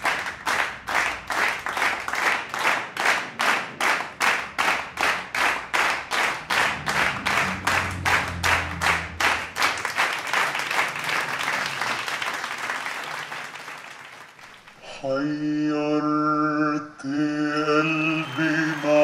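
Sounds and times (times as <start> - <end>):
rhythmic hand claps: 0.0 - 14.8, 17.8 - 19.0
low note: 6.2 - 9.9.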